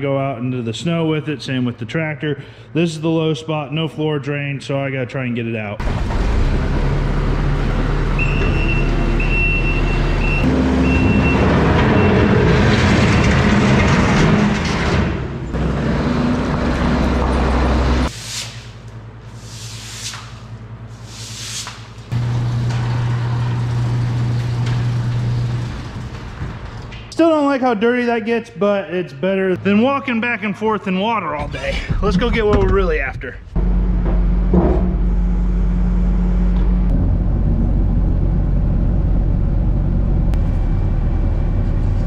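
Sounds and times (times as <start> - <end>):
diesel engine running: 5.8 - 18.1, 22.2 - 26.8, 33.6 - 42.0.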